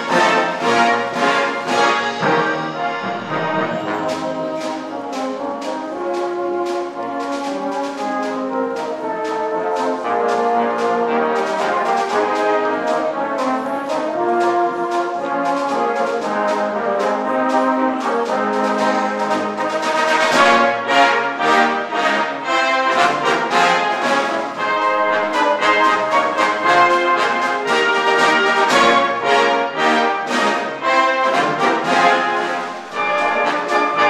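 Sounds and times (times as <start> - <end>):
brass chords: 0.0 - 34.0
percussion beat: 0.0 - 34.0.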